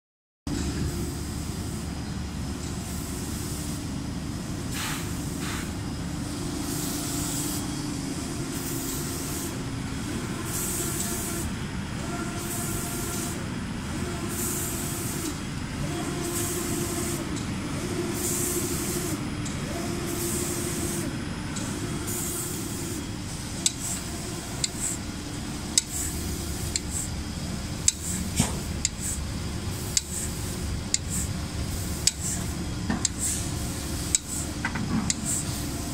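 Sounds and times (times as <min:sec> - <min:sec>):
machine hum: 0:00.5 - 0:35.9
spray guns hissing: 0:27.9 - 0:32.5
machinery clicks and knocks: 0:34.1 - 0:35.4.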